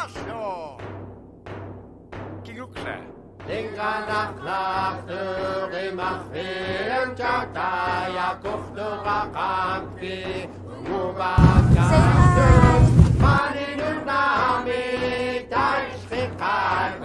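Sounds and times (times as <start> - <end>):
chanted vocal: 3.5 - 17.0
steady low drone: 11.4 - 13.4.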